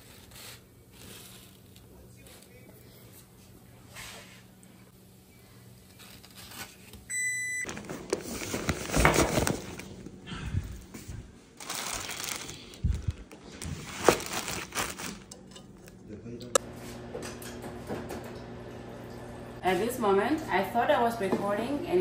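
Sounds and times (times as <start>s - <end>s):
rustling and clattering: 7.7s - 10.0s.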